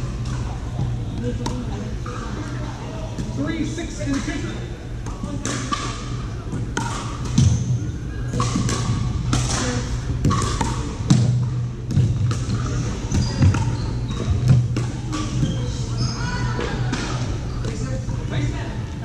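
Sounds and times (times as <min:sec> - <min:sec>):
steady low hum: 0:00.0 - 0:19.0
paddles hitting plastic ball: 0:08.3 - 0:12.7.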